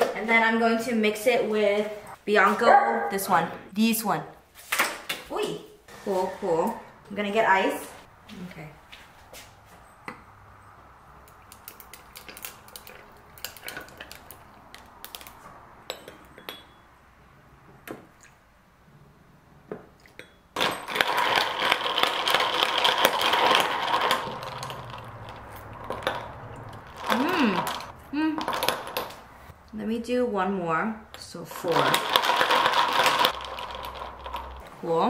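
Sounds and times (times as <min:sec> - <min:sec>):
ice cubes clattering into glass: 0:20.6 - 0:26.2, 0:31.7 - 0:34.6.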